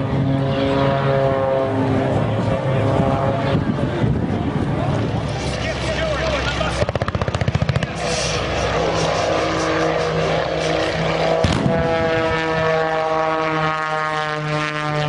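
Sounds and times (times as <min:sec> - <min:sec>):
propeller engine drone: 0:00.0 - 0:15.0
rapid pops: 0:06.8 - 0:08.0
pyrotechnic explosion blast: 0:11.4 - 0:13.0.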